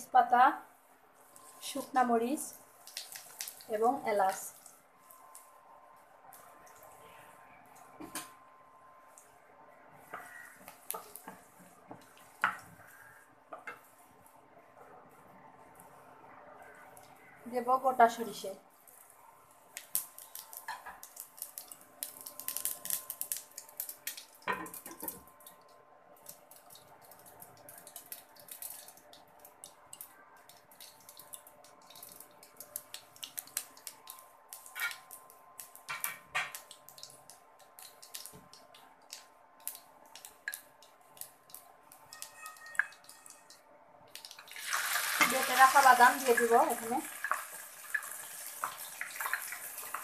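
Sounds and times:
mustard seeds popping in oil: 19.7s - 50.0s.

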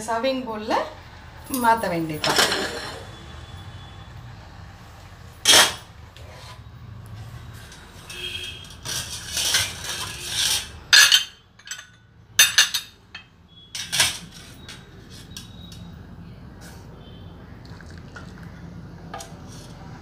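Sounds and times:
bowls and spoons clinking: 8.7s - 15.9s.

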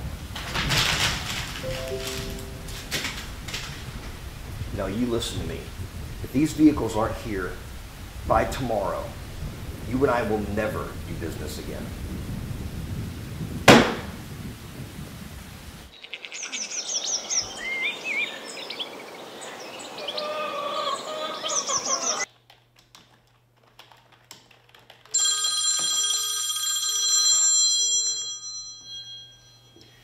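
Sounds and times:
mobile phone ringtone: 1.6s - 2.9s, 25.2s - 30.0s
birds chirping: 15.9s - 22.3s.

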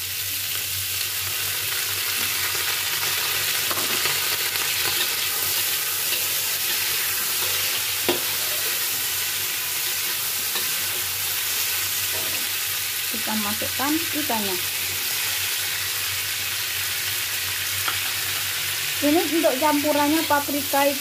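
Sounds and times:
peppers sizzling in a wok: 0.0s - 21.0s
metal spatula scraping a wok: 3.5s - 12.7s.

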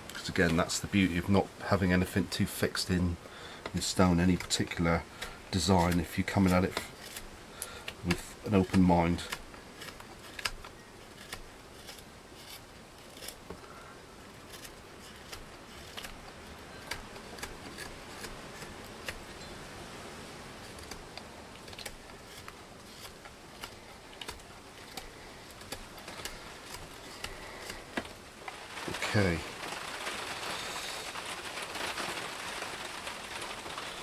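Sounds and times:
knife carving wood clicks: 4.4s - 13.6s, 14.5s - 16.2s, 16.8s - 19.4s, 20.7s - 28.2s.

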